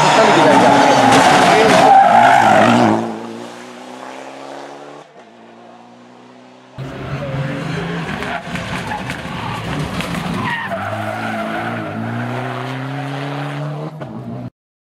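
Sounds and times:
tyres squealing and skidding: 0.0 - 3.2, 6.8 - 13.1
car engine accelerating hard: 0.0 - 14.5.

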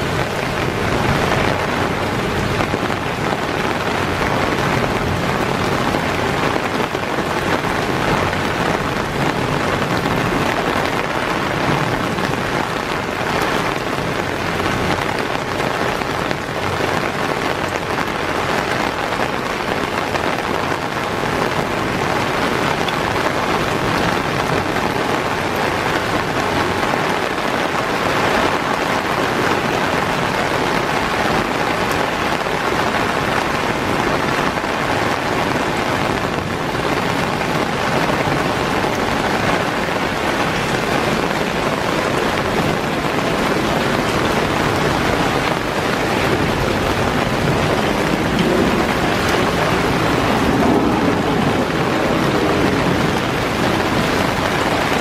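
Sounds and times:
rain falling on foliage: 0.0 - 55.0.

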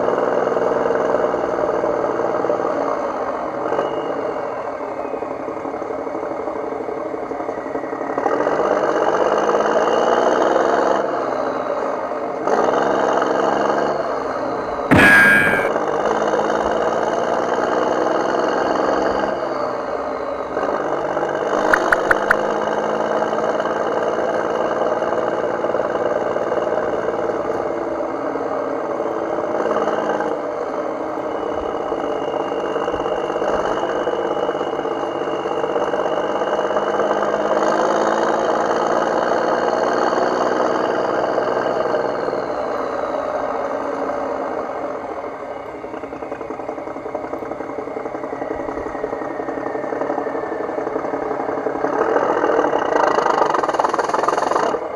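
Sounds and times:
engine running: 18.8 - 54.9.

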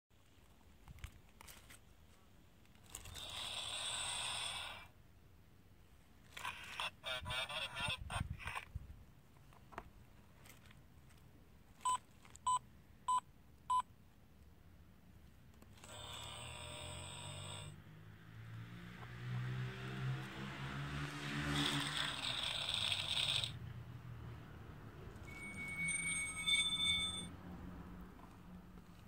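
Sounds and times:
crackly radio sound: 6.4 - 8.7
short electronic beeps: 11.9 - 13.9, 25.2 - 27.3.

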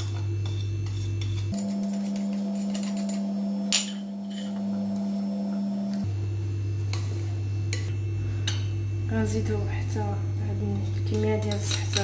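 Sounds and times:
steady humming tone: 0.0 - 12.0
spoon scraping through semolina: 0.4 - 3.4.

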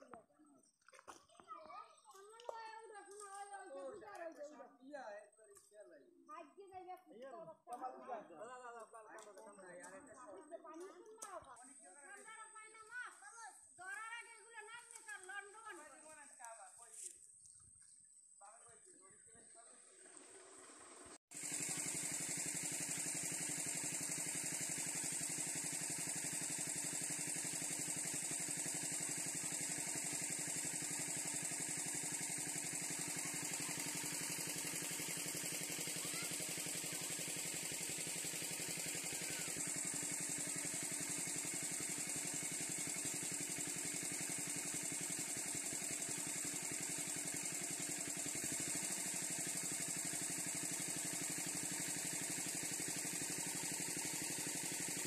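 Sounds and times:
engine-driven water pump running: 0.8 - 4.4, 18.6 - 55.0.

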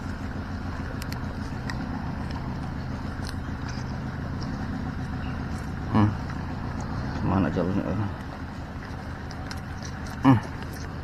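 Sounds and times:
motor humming: 0.0 - 11.0.

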